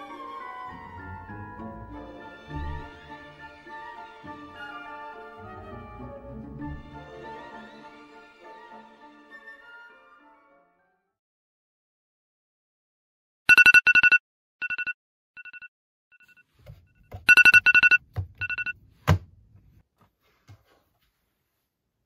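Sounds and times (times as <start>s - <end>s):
alarm clock beeping: 13.5s - 18.8s.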